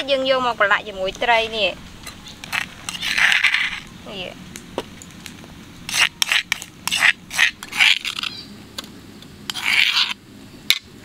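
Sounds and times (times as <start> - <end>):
metal spoon scraping steel tray: 2.0 - 3.9, 5.9 - 8.4, 9.5 - 10.2.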